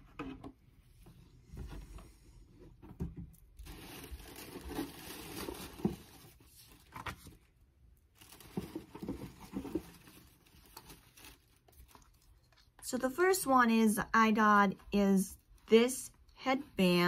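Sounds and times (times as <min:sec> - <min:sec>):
tissue paper rustling and crinkling: 0:03.6 - 0:07.5, 0:08.1 - 0:12.6.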